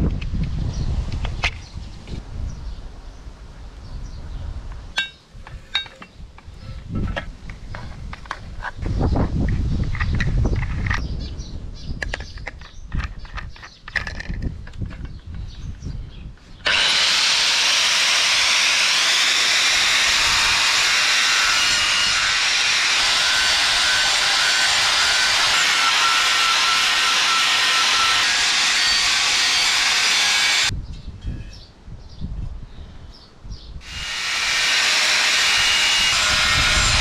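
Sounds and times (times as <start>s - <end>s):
angle grinder grinding metal: 16.6s - 30.7s, 33.8s - 37.0s.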